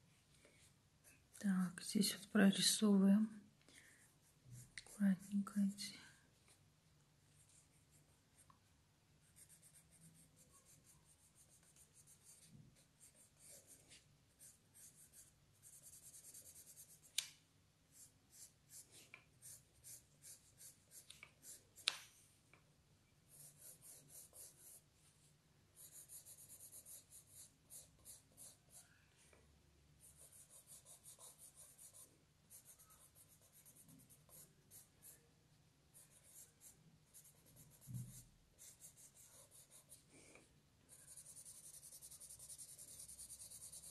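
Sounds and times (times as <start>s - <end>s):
pencil strokes on paper: 4.0s - 6.0s, 9.2s - 17.2s, 17.9s - 22.1s, 23.3s - 25.2s, 25.8s - 28.9s, 30.0s - 35.2s, 35.9s - 43.9s.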